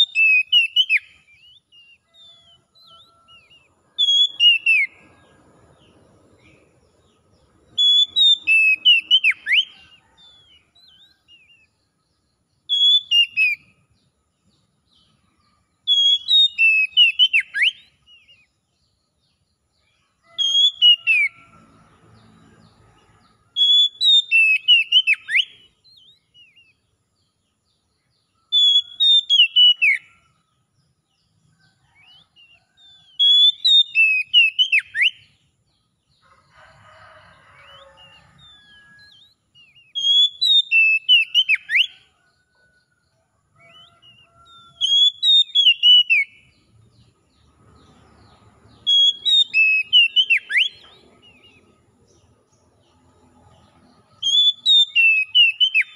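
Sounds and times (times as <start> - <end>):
bird whistling song: 0.0 - 5.2, 7.7 - 11.8, 12.6 - 13.8, 15.8 - 18.5, 20.3 - 21.4, 23.6 - 26.8, 28.4 - 30.2, 32.0 - 35.4, 37.7 - 42.1, 43.6 - 46.6, 48.8 - 51.7, 54.2 - 55.9.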